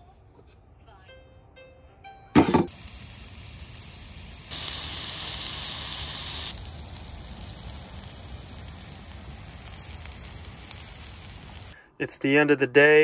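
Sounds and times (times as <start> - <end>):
steaks sizzling on a griddle: 2.7 - 11.8.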